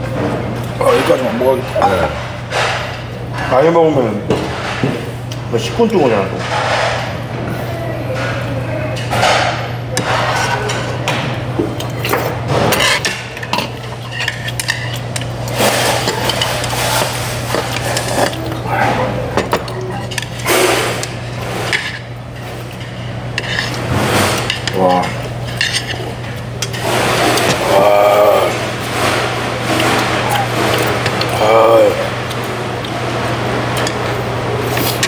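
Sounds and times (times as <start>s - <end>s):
steady low hum: 0.0s - 35.0s
voices in background: 5.5s - 12.3s.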